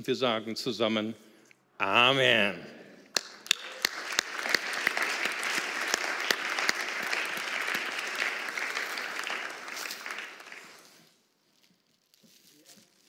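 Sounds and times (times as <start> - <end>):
crowd applauding: 3.2 - 11.0.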